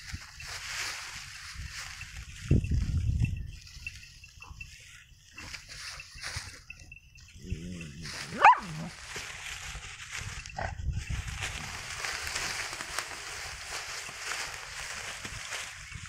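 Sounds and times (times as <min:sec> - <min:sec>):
rustling of dry straw: 0:00.0 - 0:16.0
dog yelping: 0:08.2 - 0:08.9.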